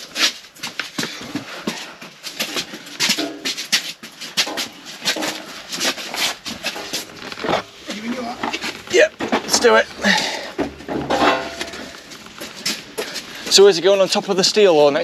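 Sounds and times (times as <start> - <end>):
steel beam knocking and rattling: 10.6 - 11.9.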